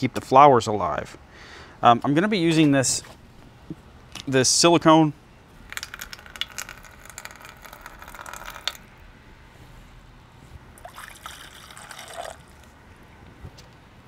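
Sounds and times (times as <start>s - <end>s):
water trickling and splashing: 10.8s - 12.7s.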